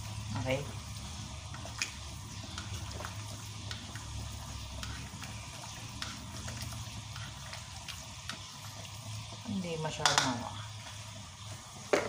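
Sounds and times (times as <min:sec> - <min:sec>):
sauce bubbling in a wok: 0:00.0 - 0:12.0
spatula stirring: 0:00.0 - 0:12.0.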